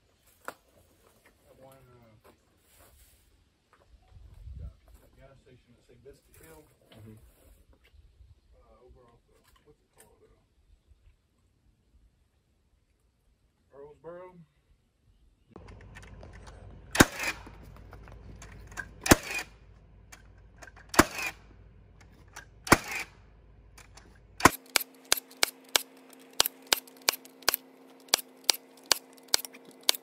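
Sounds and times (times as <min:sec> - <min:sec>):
nailer banging nails into wood: 0:19.0 - 0:19.5, 0:20.7 - 0:21.4, 0:22.7 - 0:23.1, 0:24.4 - 0:30.0
fainter clicks: 0:23.8 - 0:30.0.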